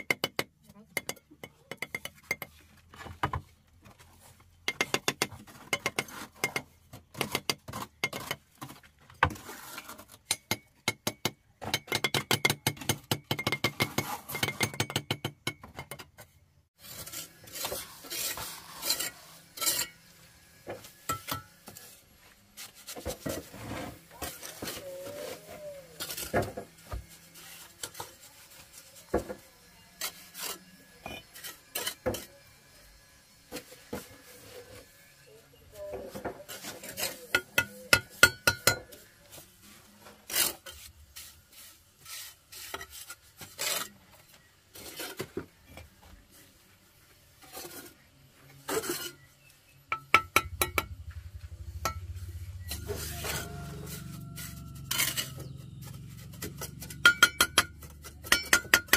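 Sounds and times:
hand tools scraping: 0:03.9 - 0:10.9, 0:11.6 - 0:15.4, 0:16.0 - 0:46.5, 0:47.2 - 0:58.9
tool clinks and knocks: 0:56.4 - 0:58.9.

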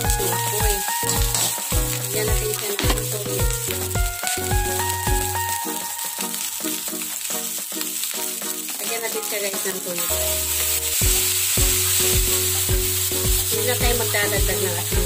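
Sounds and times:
drum beat: 0:00.0 - 0:05.4, 0:10.9 - 0:15.0
sauce pouring: 0:00.0 - 0:14.2
background music: 0:00.0 - 0:15.0
food sizzling in a wok: 0:00.0 - 0:15.0.

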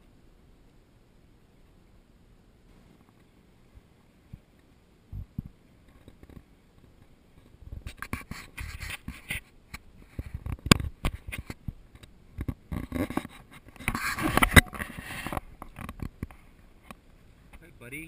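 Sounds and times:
camera scraping and rustling: 0:05.3 - 0:17.6.

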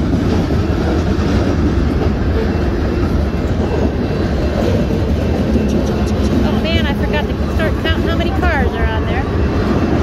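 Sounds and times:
train wheels rumbling on rail: 0:00.0 - 0:10.0.

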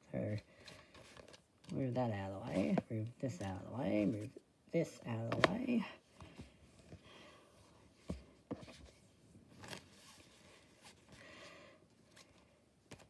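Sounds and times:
cards rustling and sliding: 0:00.3 - 0:04.4, 0:07.9 - 0:13.0.

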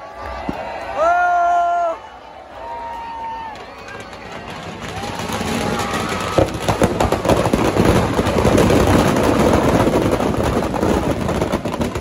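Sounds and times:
firecrackers crackling: 0:03.5 - 0:12.0.

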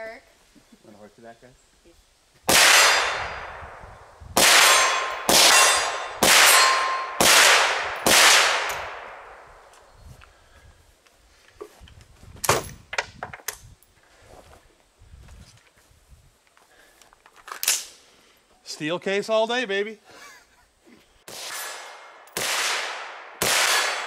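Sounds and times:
rifle shots with metallic clang: 0:02.5 - 0:03.6, 0:04.4 - 0:09.5, 0:21.3 - 0:24.0
rifle handling clicks: 0:16.5 - 0:18.0.

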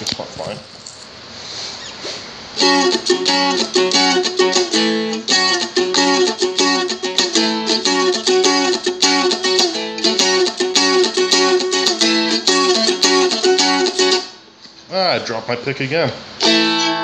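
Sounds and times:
fretted folk instrument strummed: 0:02.6 - 0:14.4, 0:16.4 - 0:17.0.

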